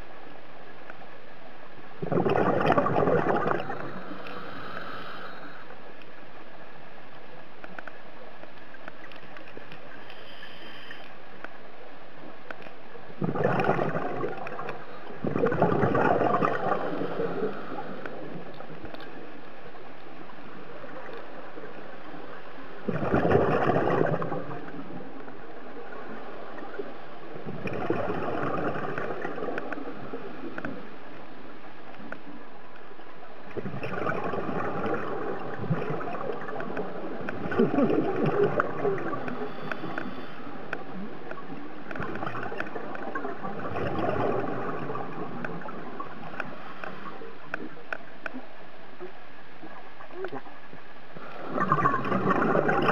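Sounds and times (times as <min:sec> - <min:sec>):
exhaled bubbles underwater: 0:02.0 - 0:05.5, 0:13.1 - 0:32.1, 0:33.4 - 0:52.9
diver breathing through regulator: 0:04.0 - 0:05.8.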